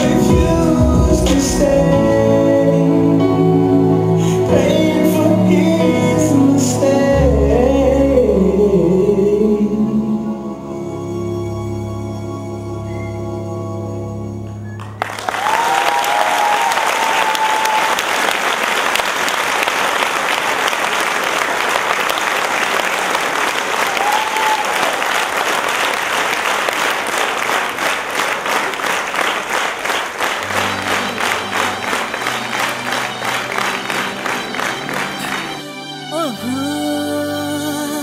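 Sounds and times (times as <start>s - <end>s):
dance music: 0.0s - 7.1s, 30.3s - 38.0s
audience applause: 14.8s - 36.1s
rhythmic clapping: 14.8s - 36.2s.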